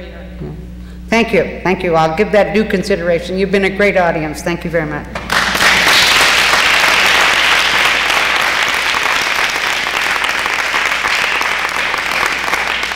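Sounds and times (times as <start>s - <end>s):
audience applauding: 5.2s - 12.9s.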